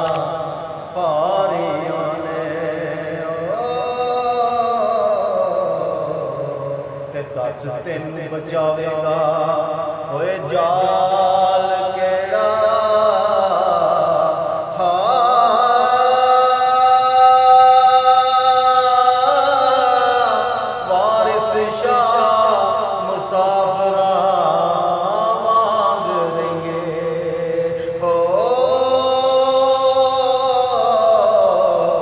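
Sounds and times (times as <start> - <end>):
person singing long held notes: 0.0 - 32.0.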